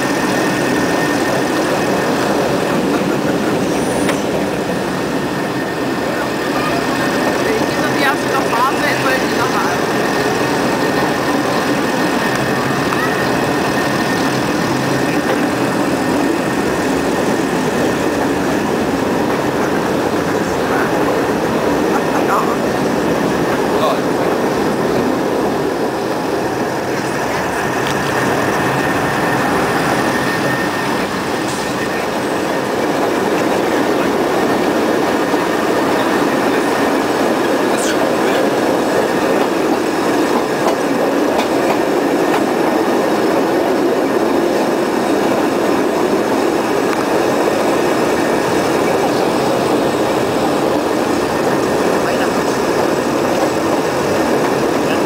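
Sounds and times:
faint high wheel squeal: 0.0s - 4.4s, 9.7s - 17.0s
train wheels rumbling on rails: 0.0s - 55.0s.

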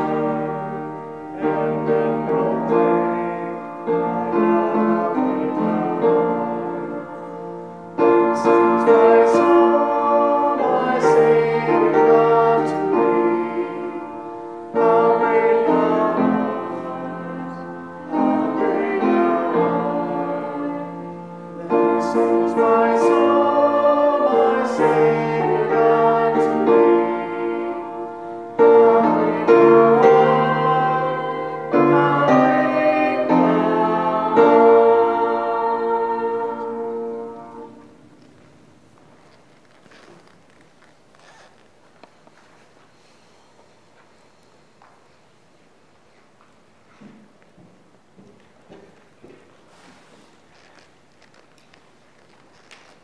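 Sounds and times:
upright piano playing slow piece: 0.0s - 39.3s.

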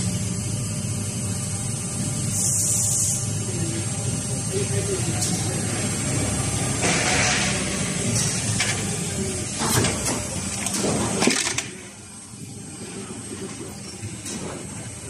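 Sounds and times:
machine hiss: 2.3s - 3.5s.

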